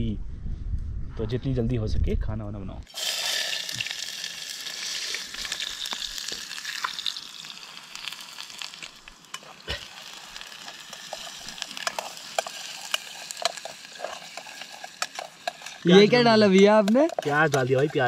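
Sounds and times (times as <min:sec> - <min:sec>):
onion sizzling in hot oil: 0:02.9 - 0:18.0
stirring clicks and taps: 0:08.0 - 0:18.0.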